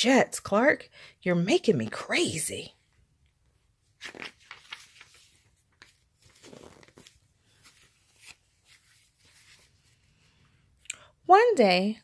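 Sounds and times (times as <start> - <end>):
paper page rustling and clicking: 4.0 - 9.8.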